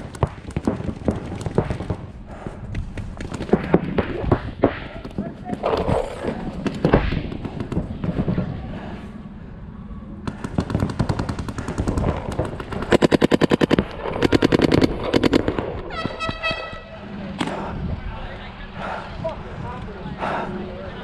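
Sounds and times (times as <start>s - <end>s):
paintball markers firing: 0.0s - 8.3s, 10.3s - 15.8s.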